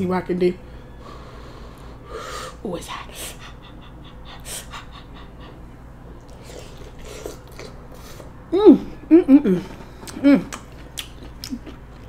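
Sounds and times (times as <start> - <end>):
wet mouth clicks chewing: 10.0 - 12.0.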